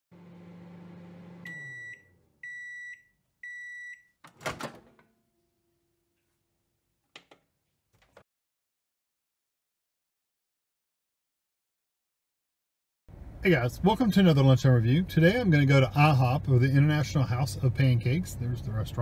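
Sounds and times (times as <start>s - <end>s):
microwave oven humming: 0.1s - 5.9s
microwave beeps: 0.9s - 4.2s
microwave door opening clunk: 4.3s - 5.1s.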